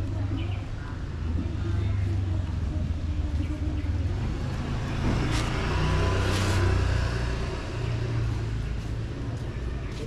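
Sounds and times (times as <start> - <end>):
vehicle engine passing: 3.8 - 9.4.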